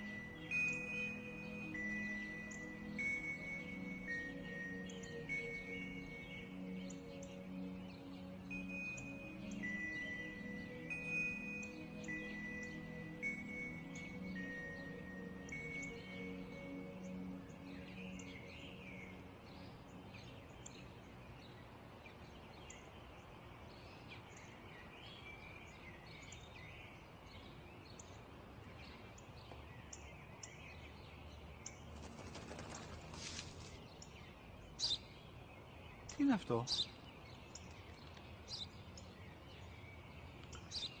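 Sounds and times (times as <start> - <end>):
small birds chirping: 0.0 - 41.0
brief rustle: 32.1 - 33.8.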